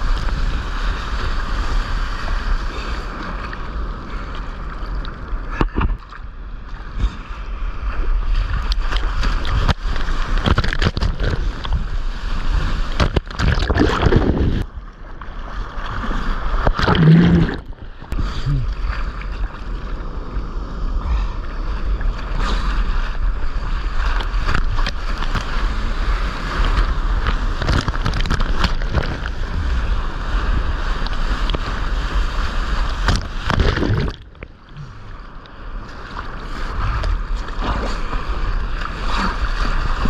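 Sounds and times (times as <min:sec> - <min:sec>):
water splashing and sloshing: 0:00.0 - 0:20.7, 0:21.8 - 0:40.0
wind buffeting the microphone: 0:06.9 - 0:14.8.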